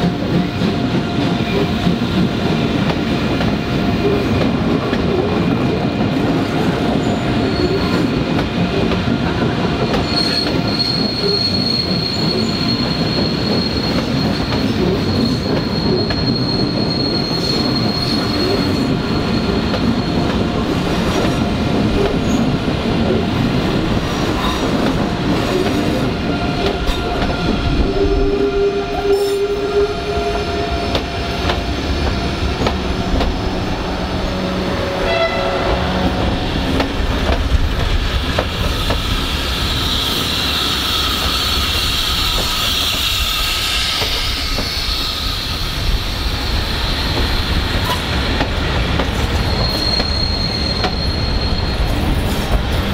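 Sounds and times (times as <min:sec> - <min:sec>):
train wheels rumbling: 0:00.0 - 0:52.9
wheel flange squeal: 0:10.0 - 0:20.3, 0:38.7 - 0:48.1, 0:49.3 - 0:52.5.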